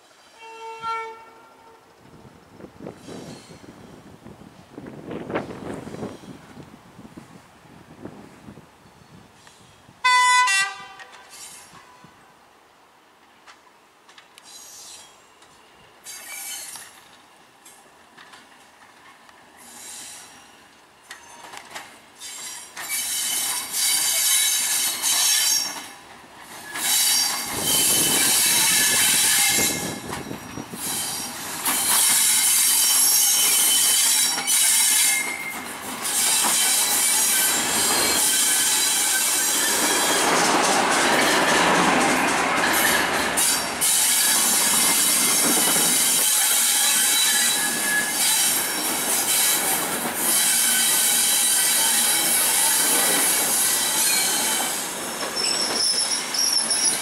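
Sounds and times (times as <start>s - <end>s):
train wheels squealing: 2.9s - 4.1s, 11.1s - 12.1s, 14.4s - 17.8s, 19.5s - 57.0s
wheels clicking over rail joints: 13.2s - 20.1s, 20.7s - 57.0s.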